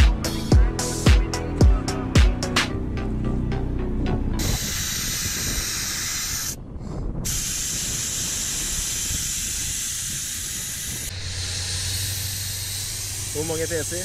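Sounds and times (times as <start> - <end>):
air hissing out of tyre: 4.4 - 14.0.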